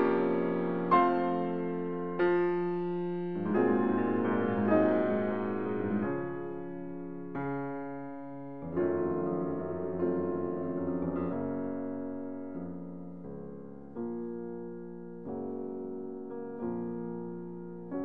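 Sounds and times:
slow piano chords: 0.0 - 18.0.

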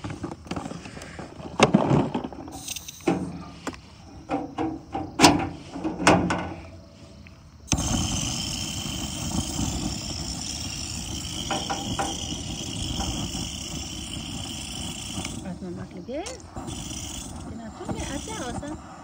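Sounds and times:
jet torch lighter hissing: 7.7 - 19.0.

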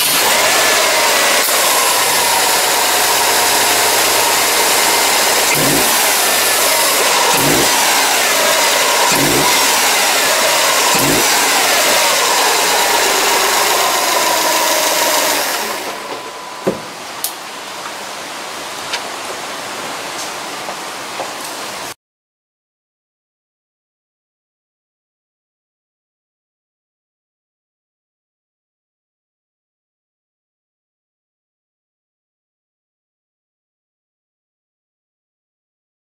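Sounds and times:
car engine revving: 0.0 - 16.6.

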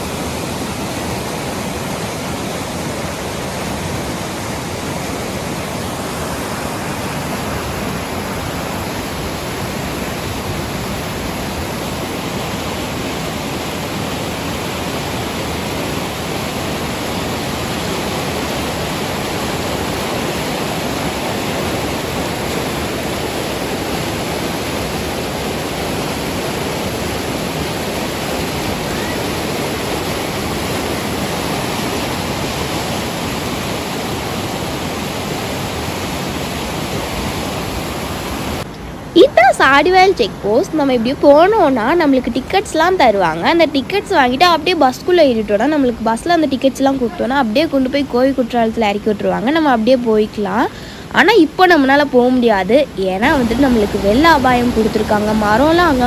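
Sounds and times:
water rushing over weir: 0.0 - 56.0.

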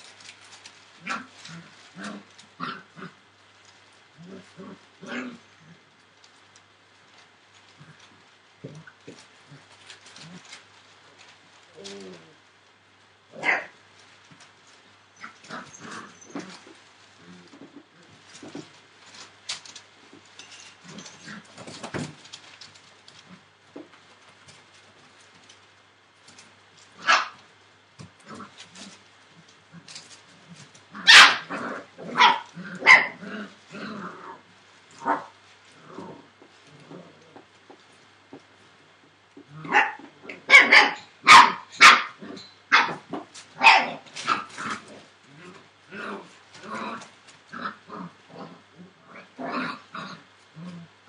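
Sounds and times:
puppy noises: 0.0 - 12.5, 13.3 - 51.0
puppy barking: 13.4 - 13.7, 27.0 - 27.4, 31.0 - 33.2, 39.7 - 43.0, 43.6 - 44.4.

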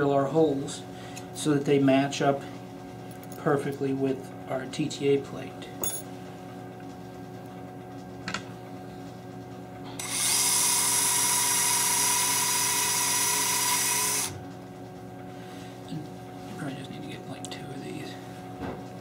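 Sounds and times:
power drill high whine: 10.0 - 14.4.

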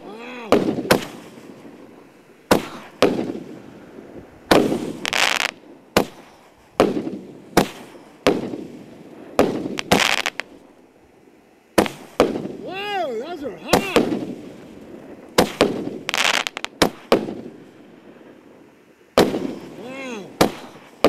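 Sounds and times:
fireworks bangs: 0.0 - 10.8, 11.7 - 21.0
fireworks hissing: 0.0 - 21.0.

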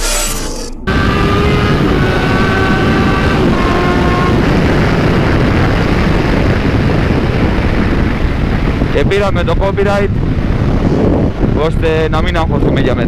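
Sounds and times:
motorcycle engine running: 0.0 - 8.9.

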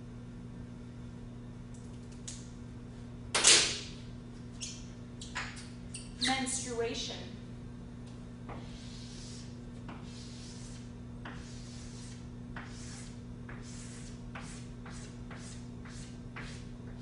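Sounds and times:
low electrical hum: 0.0 - 17.0
chalk scraping on blackboard: 8.5 - 16.7.

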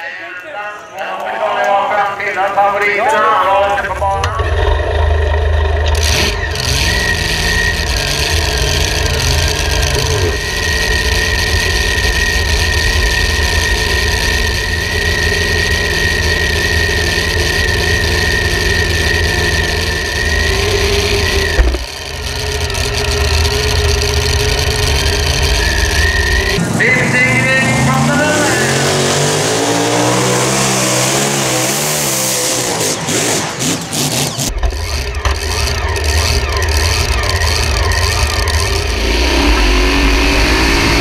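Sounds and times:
loud engine idling: 1.6 - 41.0
steady high tone: 38.2 - 41.0.

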